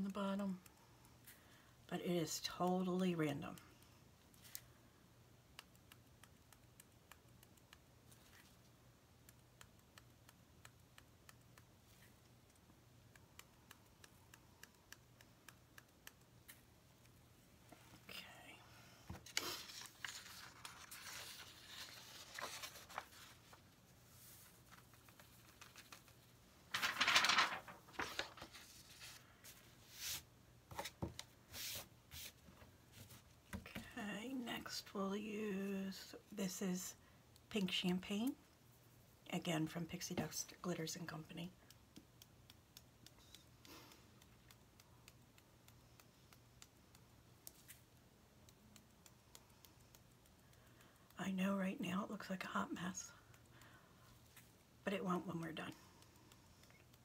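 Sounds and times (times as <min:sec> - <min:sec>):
low steady hum: 0:00.0 - 0:57.0
paper rustling and sliding: 0:19.2 - 0:32.4
small taps and scrapes: 0:27.9 - 0:34.0.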